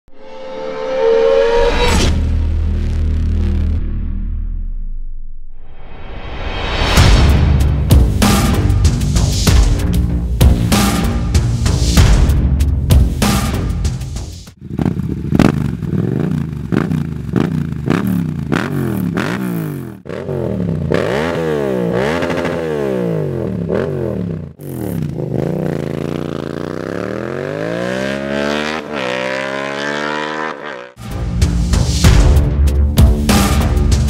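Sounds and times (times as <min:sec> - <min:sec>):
motorcycle accelerating: 0:14.5 - 0:31.0
motorcycle engine revving: 0:14.5 - 0:31.0.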